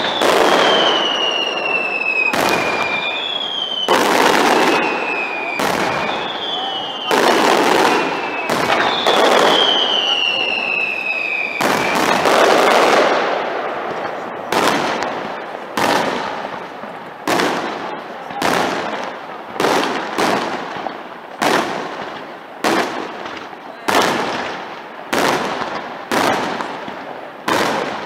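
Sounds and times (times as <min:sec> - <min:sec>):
firework shells bursting: 0:00.0 - 0:16.7
high falling whistle: 0:04.6 - 0:07.2, 0:08.0 - 0:12.1.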